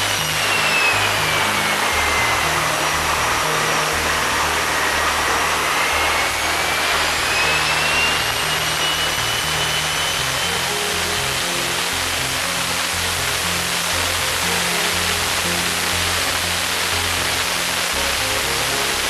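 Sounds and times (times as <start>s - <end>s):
high turbine whine: 0.0s - 19.0s
jet engine roar: 0.0s - 19.0s.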